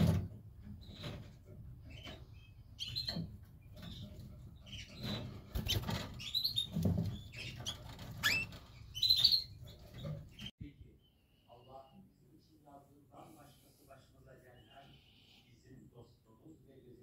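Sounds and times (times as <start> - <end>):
canaries chirping: 0.8 - 12.0, 14.3 - 16.0
light rustles and knocks: 3.0 - 10.5.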